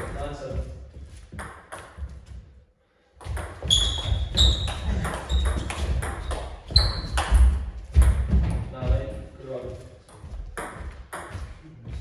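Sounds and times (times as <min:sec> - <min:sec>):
table tennis ball pinging: 0:03.2 - 0:08.3.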